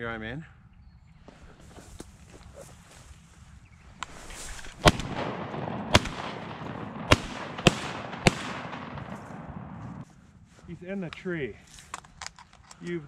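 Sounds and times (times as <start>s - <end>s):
rustling hiss: 1.3s - 5.4s
shotgun shots: 4.6s - 10.0s.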